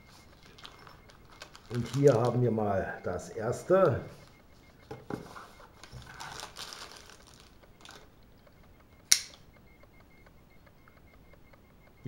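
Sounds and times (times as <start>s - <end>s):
plastic wrapping crinkling: 0.0s - 8.2s
sharp click: 8.6s - 11.7s.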